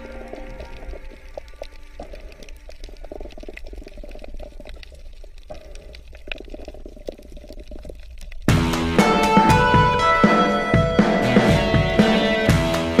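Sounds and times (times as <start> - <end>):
small crackling clicks: 0.0 - 8.5
underwater low rumble: 0.0 - 8.6.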